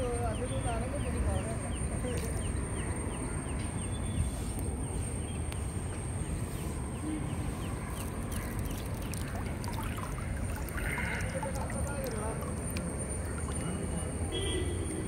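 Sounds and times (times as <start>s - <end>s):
river water sloshing around net: 7.9s - 14.2s.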